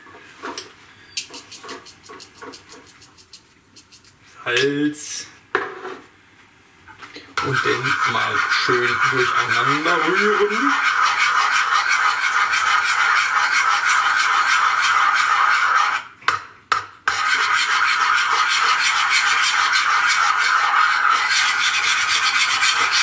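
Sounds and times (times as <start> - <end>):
spoon scraping bowl: 1.2 - 4.3, 7.4 - 16.0, 17.1 - 23.0.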